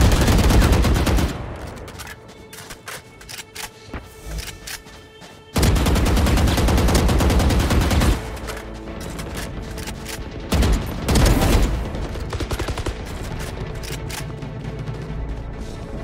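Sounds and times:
video game automatic gunfire: 0:00.0 - 0:01.5, 0:05.6 - 0:08.4, 0:10.5 - 0:13.3.

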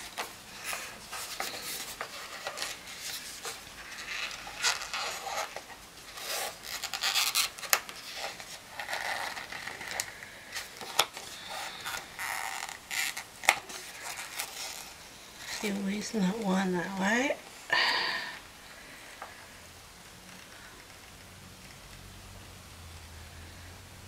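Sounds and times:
paper and stickers rustling: 0:00.0 - 0:17.4.

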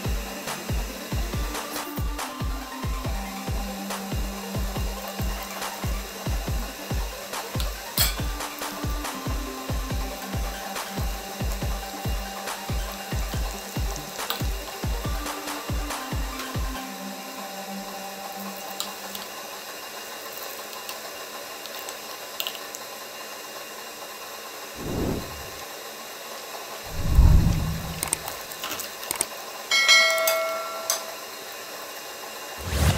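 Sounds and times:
whoosh sound effect: 0:24.8 - 0:25.6, 0:26.9 - 0:28.4
ringing bell chime: 0:29.7 - 0:31.3.

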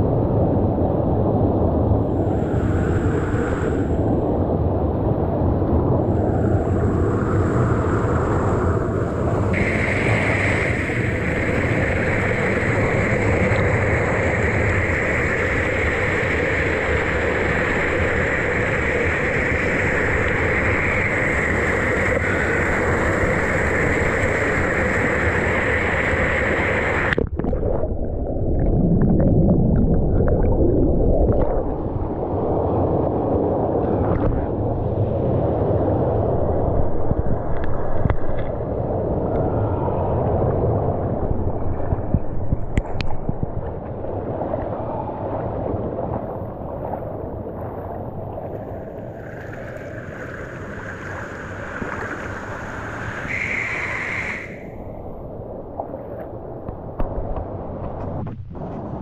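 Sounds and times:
rushing water: 0:00.0 - 0:59.0.

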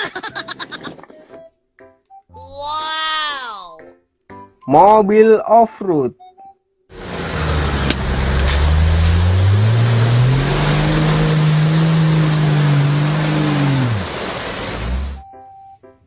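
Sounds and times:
churning mud and tyre noise: 0:06.9 - 0:15.2
off-road vehicle engine revving: 0:06.9 - 0:15.2.

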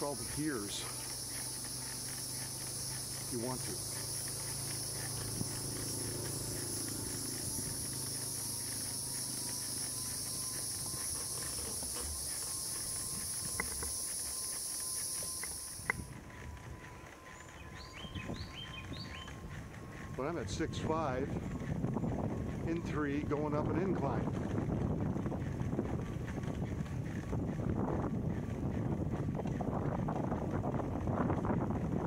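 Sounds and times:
sharp clicks: 0:00.0 - 0:16.0
insect chorus buzzing: 0:00.0 - 0:20.2.

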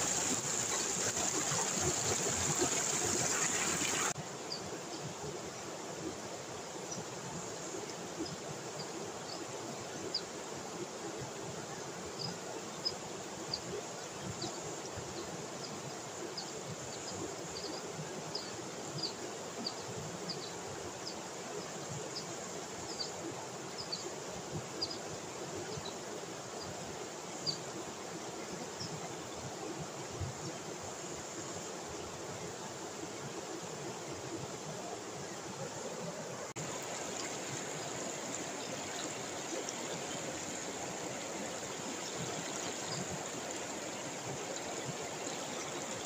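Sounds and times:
river rapids rushing over rocks: 0:00.0 - 0:04.2, 0:34.2 - 0:46.0.

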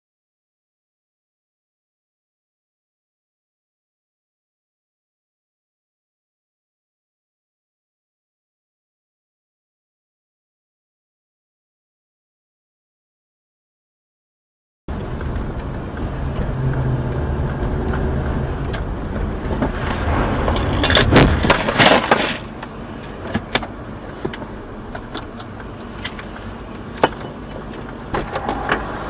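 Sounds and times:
scattered knocks and clicks: 0:14.9 - 0:28.9
vehicle road rumble: 0:14.9 - 0:29.0
crash impacts and breaking: 0:19.6 - 0:22.6.

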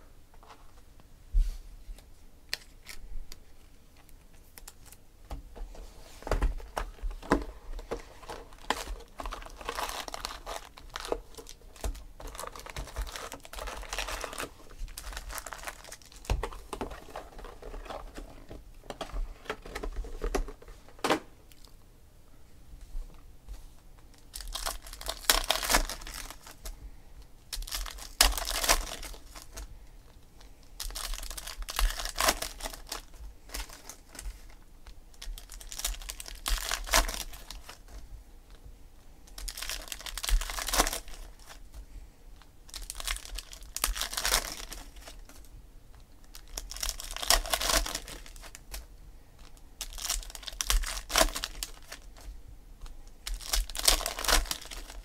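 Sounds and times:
foil wrappers torn and crinkled: 0:07.2 - 0:18.3, 0:24.2 - 0:26.7, 0:27.5 - 0:29.7, 0:30.8 - 0:34.2, 0:35.1 - 0:38.0, 0:39.3 - 0:41.6, 0:42.7 - 0:45.5, 0:46.3 - 0:52.3, 0:53.2 - 0:55.0.

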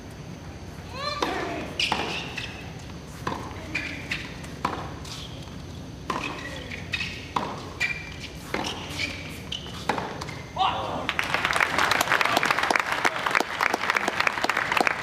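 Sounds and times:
shoes squeaking on court: 0:00.1 - 0:10.6
racquets hitting tennis ball: 0:00.9 - 0:12.4.

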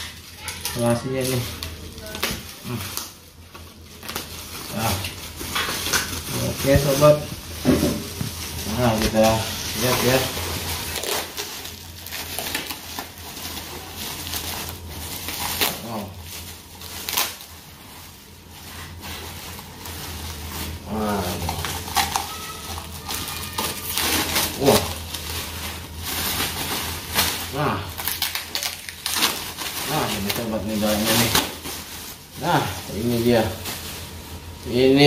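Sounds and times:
bubble wrap crackling: 0:00.0 - 0:35.0.

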